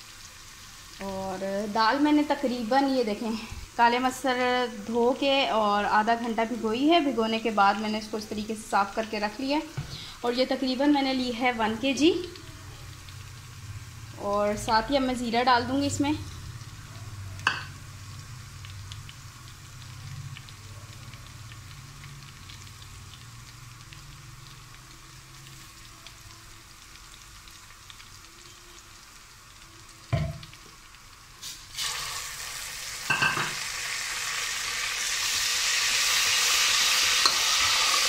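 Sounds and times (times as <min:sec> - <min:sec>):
paste sizzling in hot oil: 0:00.0 - 0:38.0
knock: 0:30.1 - 0:30.4.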